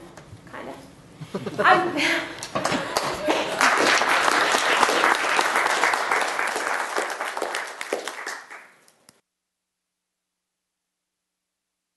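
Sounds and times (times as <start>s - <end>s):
audience applauding: 2.4s - 8.8s.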